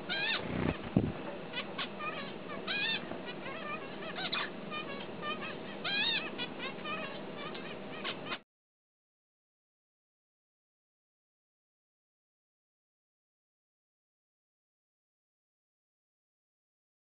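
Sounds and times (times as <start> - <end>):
finch singing: 0.0 - 8.4.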